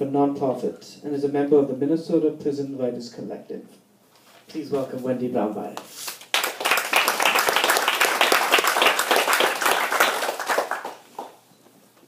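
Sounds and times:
audience clapping: 6.0 - 11.4.

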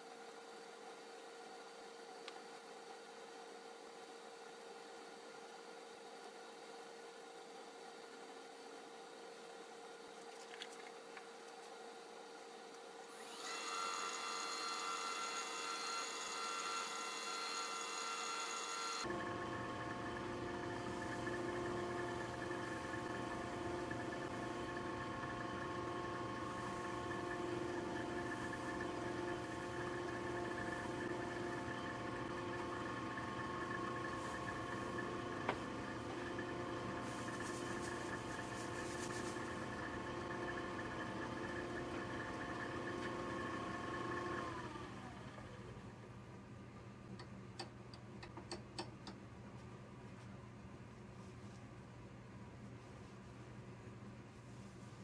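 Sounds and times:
motor winding down whine: 13.2 - 38.6, 39.2 - 46.0
wood lathe motor humming: 13.2 - 46.0.

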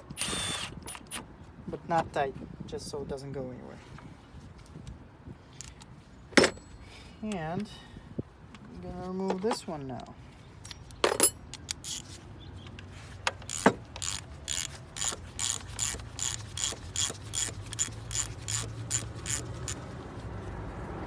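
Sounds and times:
hand ratchet clicking: 11.5 - 12.1, 13.3 - 19.8.

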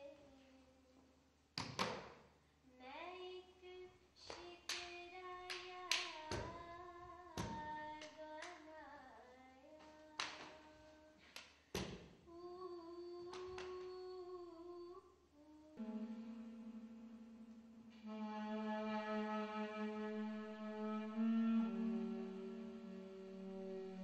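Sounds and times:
person singing long notes: 12.3 - 24.0.

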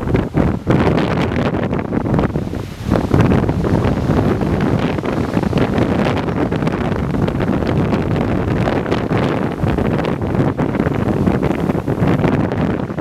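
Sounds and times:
surf breaking against seawall: 0.0 - 13.0
wind buffeting microphone: 0.0 - 13.0.

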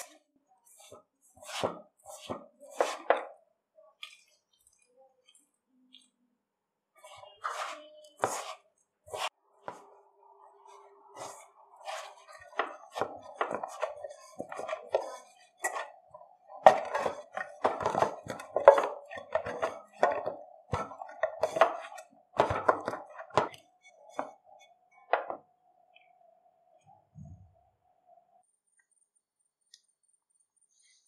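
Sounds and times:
hands kneading dough in steel bowl: 0.0 - 6.3, 6.9 - 9.9, 10.6 - 25.5.

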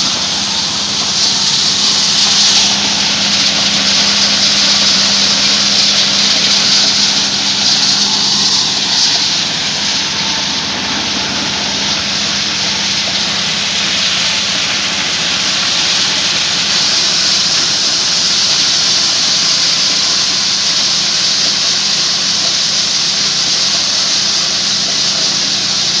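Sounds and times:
engine humming: 0.0 - 20.6.

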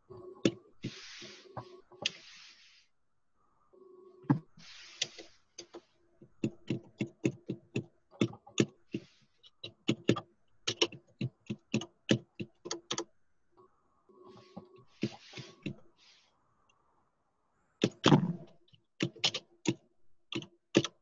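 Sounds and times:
faint steady hum: 0.0 - 18.9
computer keys typing: 6.4 - 13.1, 19.0 - 21.0.

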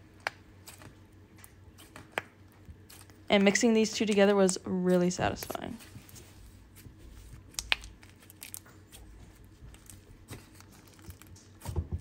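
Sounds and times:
slime sticky clicks and pops: 7.5 - 7.9.

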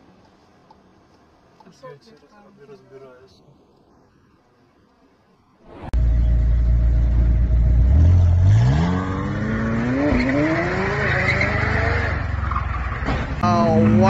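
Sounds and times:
car engine revving: 6.0 - 13.0.

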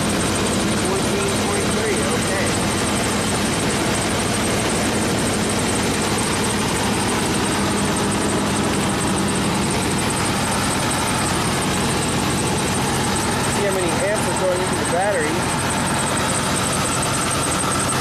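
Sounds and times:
engine idling: 0.0 - 18.0.

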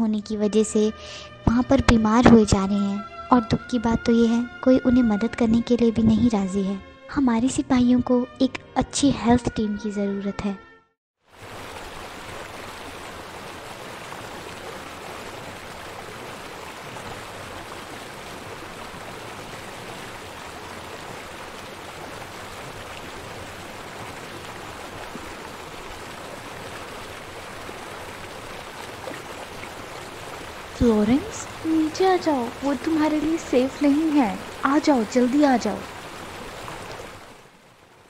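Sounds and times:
heavy rain: 11.3 - 38.0
rough water rushing: 11.3 - 38.0.

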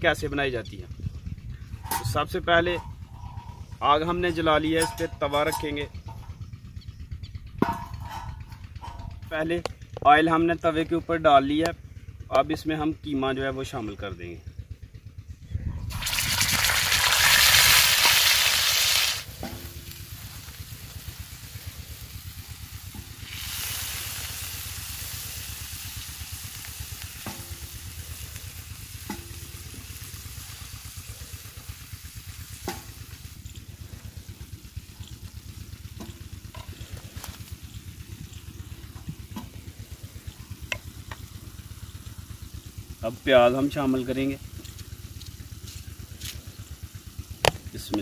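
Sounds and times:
meat sizzling in hot oil: 15.9 - 33.4.

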